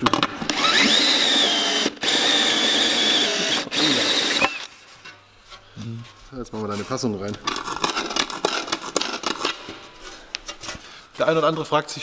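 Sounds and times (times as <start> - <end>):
power drill whining: 0.5 - 4.7.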